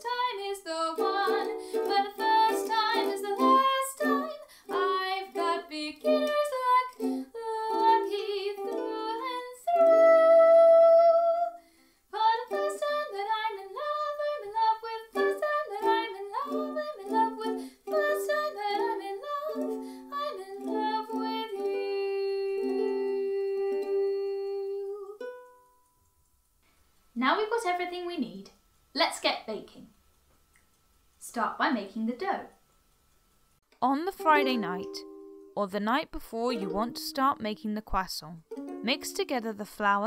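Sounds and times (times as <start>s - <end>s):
ukulele strumming: 0.0s - 11.4s, 12.2s - 26.1s, 34.0s - 35.6s, 36.4s - 37.6s, 38.5s - 39.5s
woman singing: 0.0s - 25.2s, 33.9s - 35.0s, 36.4s - 37.6s.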